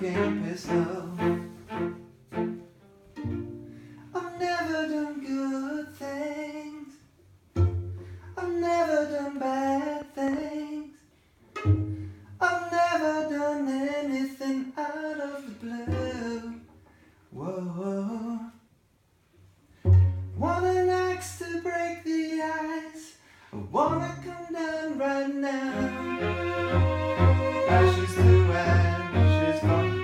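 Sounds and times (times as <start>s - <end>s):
man singing: 0.0s - 1.8s, 4.1s - 7.1s, 8.4s - 11.1s, 12.4s - 16.7s, 17.3s - 18.7s, 20.4s - 30.0s
string ensemble playing: 0.0s - 4.1s, 7.5s - 8.3s, 11.5s - 12.4s, 19.8s - 21.0s, 25.4s - 30.0s.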